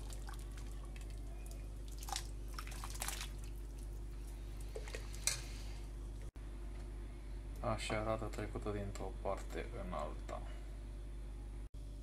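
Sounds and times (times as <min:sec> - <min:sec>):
liquid splashing: 0:00.0 - 0:05.2.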